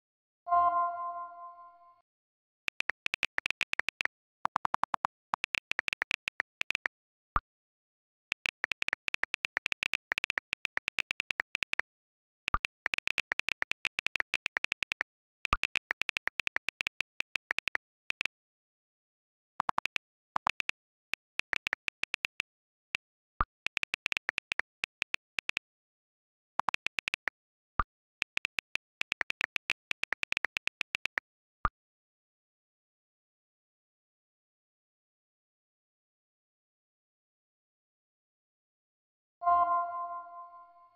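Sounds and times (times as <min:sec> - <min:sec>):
phone keyboard typing clicks: 0:02.7 - 0:06.9, 0:08.3 - 0:11.8, 0:12.5 - 0:18.3, 0:19.6 - 0:22.4, 0:23.4 - 0:25.6, 0:26.6 - 0:27.4, 0:28.2 - 0:31.2.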